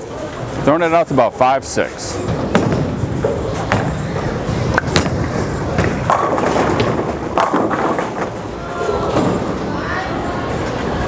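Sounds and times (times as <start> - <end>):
bowling ball rolling: 2.2 - 9.7
bowling alley clicks and knocks: 4.7 - 8.4.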